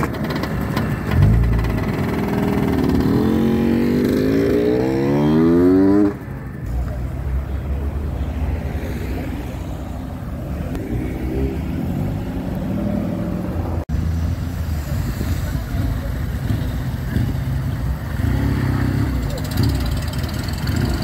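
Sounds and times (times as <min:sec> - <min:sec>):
car engine low rumble: 0:00.0 - 0:03.6
motorcycle accelerating: 0:00.0 - 0:06.9, 0:10.6 - 0:21.0.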